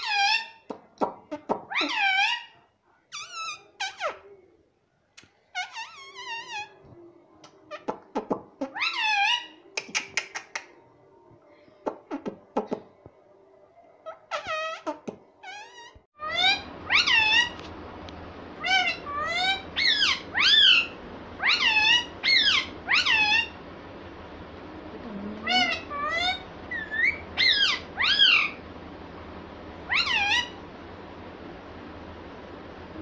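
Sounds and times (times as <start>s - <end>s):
parakeet calling: 0.0s - 4.2s, 5.5s - 6.8s, 7.7s - 10.5s, 14.0s - 17.7s, 18.6s - 23.6s, 25.4s - 28.7s, 29.8s - 30.7s.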